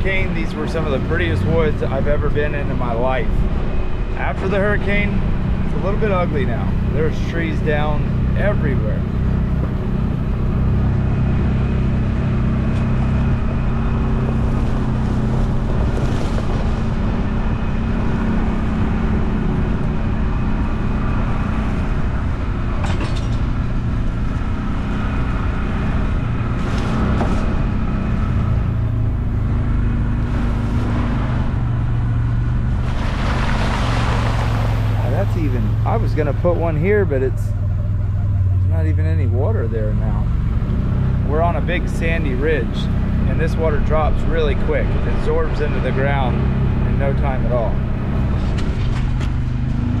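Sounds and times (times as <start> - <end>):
utility vehicle engine running: 0.0 - 50.0
tyres splashing through puddle: 30.2 - 37.2.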